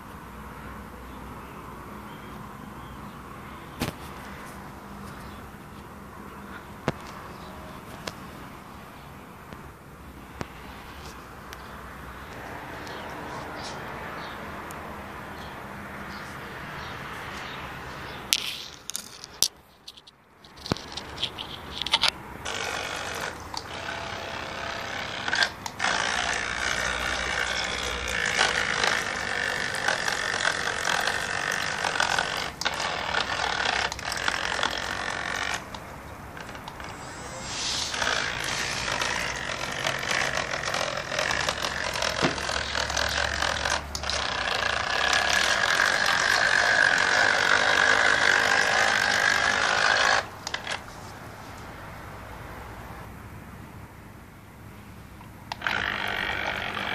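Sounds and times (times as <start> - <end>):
electric motor whining: 22.4 - 50.6, 55.5 - 56.9.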